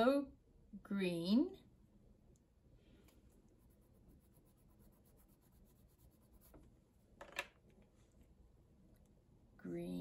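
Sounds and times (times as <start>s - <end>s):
crayon scratching on paper: 3.6s - 6.6s.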